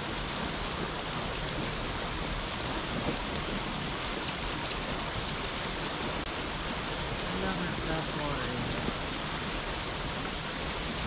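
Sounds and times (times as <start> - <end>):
flowing river water: 0.0 - 11.0
small bird chirping: 4.2 - 6.1.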